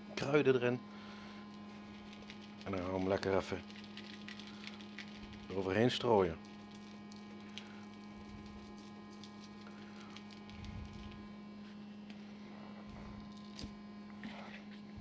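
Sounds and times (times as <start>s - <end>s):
electrical hum: 0.0s - 15.0s
spice shaker patter: 1.6s - 11.2s.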